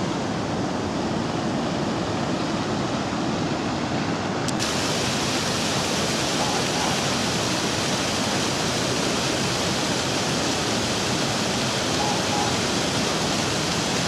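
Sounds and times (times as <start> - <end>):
small waterfall pouring onto stones: 4.6 - 14.0.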